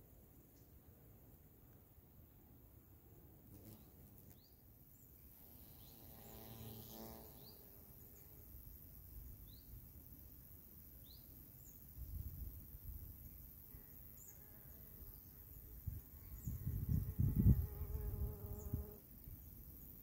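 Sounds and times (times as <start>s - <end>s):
wasp buzzing: 3.4s - 4.6s, 5.3s - 8.5s, 16.4s - 19.1s.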